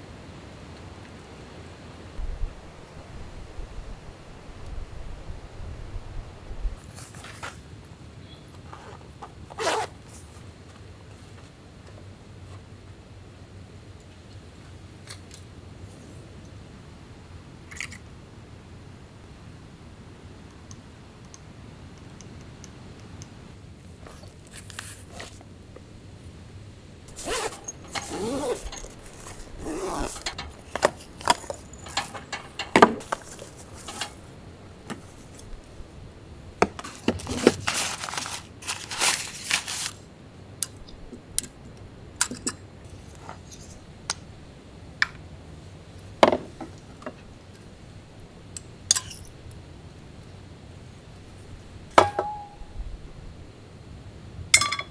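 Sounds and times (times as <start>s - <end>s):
camping gear rustling and clinking: 6.8s - 7.8s, 8.6s - 12.7s, 21.8s - 40.1s, 42.2s - 44.1s, 45.8s - 50.0s, 51.7s - 52.8s.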